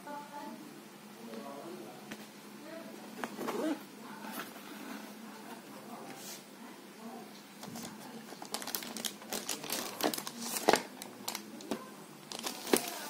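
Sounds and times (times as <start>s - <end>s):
plastic wrapping crinkling: 7.6s - 13.0s.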